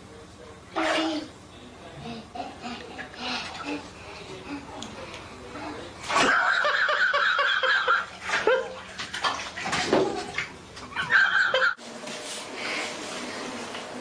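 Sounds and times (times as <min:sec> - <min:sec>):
water sloshing in bathtub: 0:02.6 - 0:12.4.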